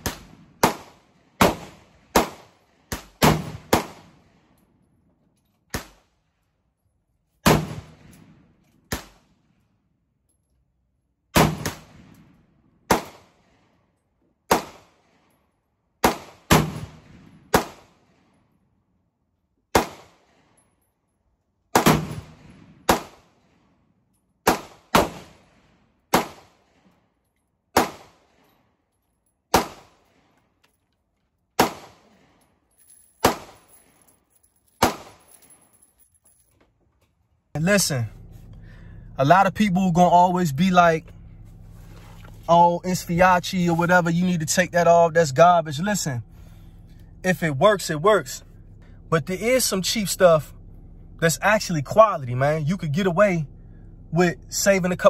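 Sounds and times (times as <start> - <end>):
pistol gunshots: 0.0 - 4.3, 7.4 - 9.3, 11.3 - 12.2, 12.9 - 13.6, 14.5 - 15.2, 16.0 - 18.2, 19.7 - 20.4, 21.7 - 23.6, 24.4 - 26.8, 27.7 - 28.4, 29.5 - 30.2, 31.6 - 32.4, 33.2 - 33.7, 34.8 - 35.3.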